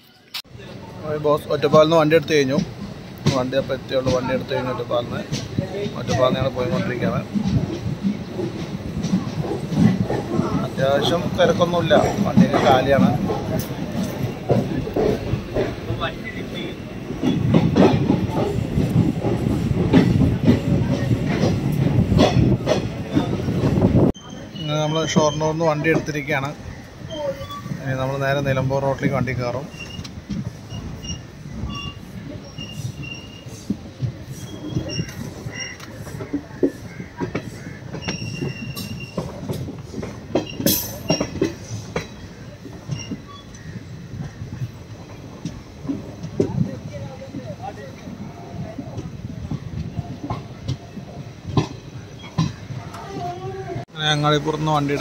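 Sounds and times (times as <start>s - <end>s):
train wheels rumbling on rails: 0.4s - 55.0s
clacks over rail joints: 1.4s - 24.2s, 25.0s - 53.9s
high wheel squeal: 24.2s - 25.8s, 29.6s - 33.7s, 34.3s - 36.3s, 37.9s - 39.4s.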